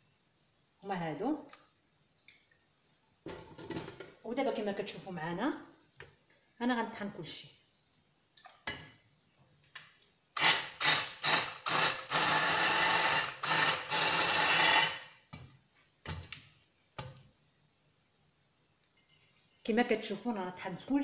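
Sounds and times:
immersion blender pureeing soup: 10.4 - 15.1.

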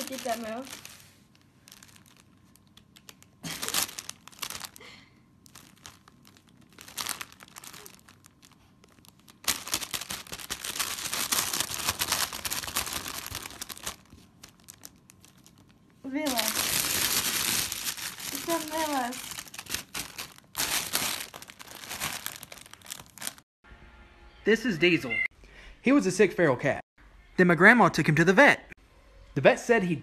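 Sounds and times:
plastic bag crinkling: 0.0 - 23.4.

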